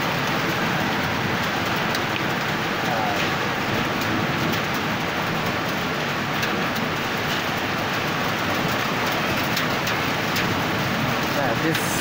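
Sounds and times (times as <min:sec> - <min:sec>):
hailstones ticking on hard surfaces: 0:00.0 - 0:12.0
heavy rain hissing: 0:10.1 - 0:12.0.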